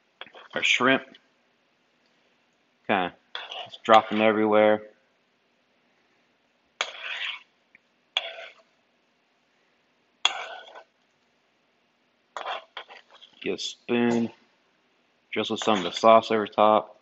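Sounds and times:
tongs clattering in skillet: 0:08.2 - 0:08.6, 0:10.2 - 0:10.9.

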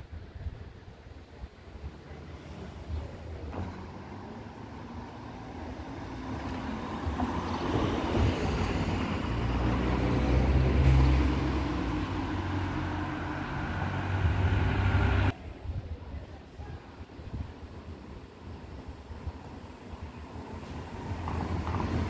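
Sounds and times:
vehicle driving past: 0:03.6 - 0:15.3.

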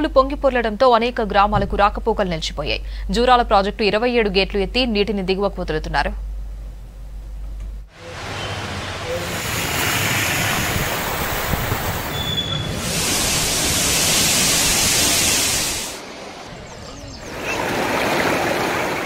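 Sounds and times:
water rushing through spillway: 0:08.0 - 0:16.5, 0:17.3 - 0:19.0.

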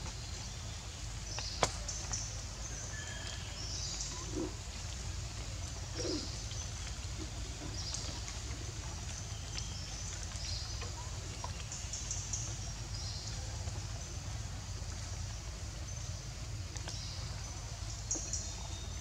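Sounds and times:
birds chirping: 0:05.9 - 0:11.1.

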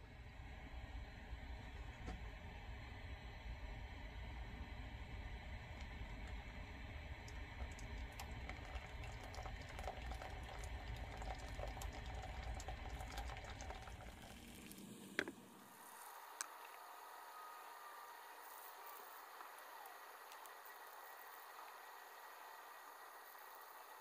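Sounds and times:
water pouring into a mug: 0:05.6 - 0:16.8, 0:20.2 - 0:24.0
kettle clicks: 0:15.2 - 0:15.4.

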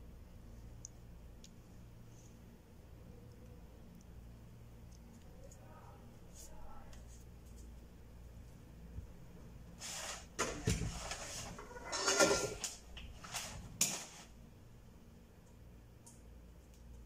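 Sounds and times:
rustling and scraping: 0:09.7 - 0:14.4.

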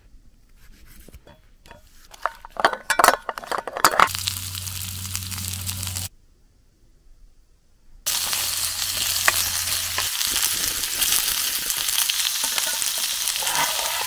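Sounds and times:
frying sizzle: 0:04.1 - 0:06.1, 0:08.1 - 0:14.0.

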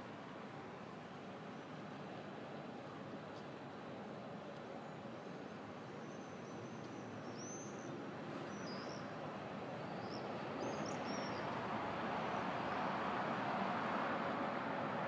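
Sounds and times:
city rumble: 0:08.0 - 0:15.0
swallows calling: 0:09.9 - 0:11.4.

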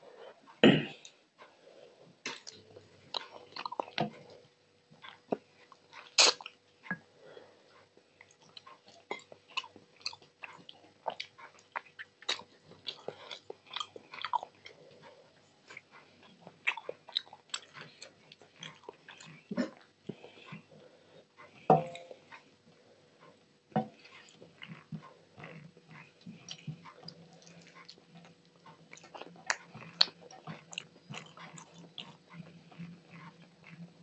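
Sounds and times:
chewing mouth smacks: 0:02.3 - 0:04.4, 0:24.0 - 0:33.8.

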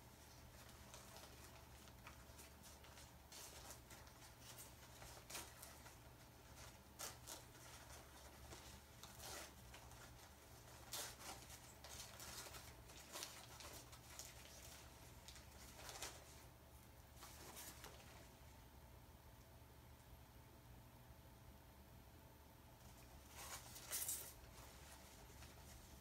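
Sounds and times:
paper packaging crinkling: 0:00.0 - 0:18.4
low steady hum: 0:00.0 - 0:26.0.

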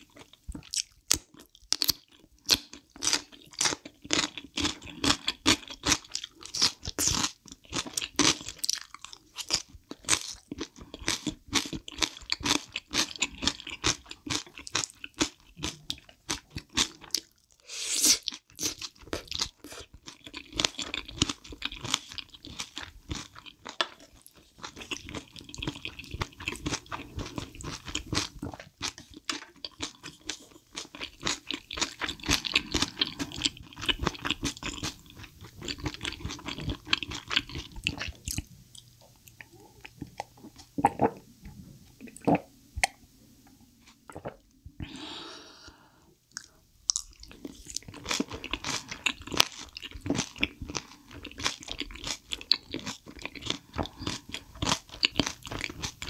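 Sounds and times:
wet crunchy chewing: 0:18.1 - 0:41.2, 0:46.3 - 0:56.0.

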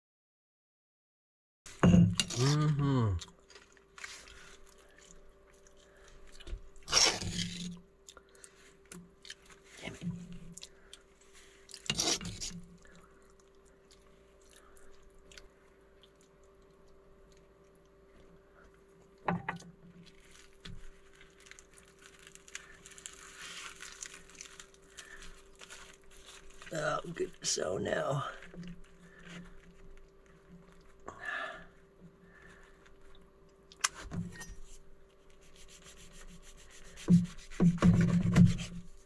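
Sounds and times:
faint steady hum: 0:01.7 - 0:39.0
spoon scraping: 0:06.9 - 0:07.7, 0:11.8 - 0:12.5
plastic bag crinkling: 0:20.0 - 0:31.1.

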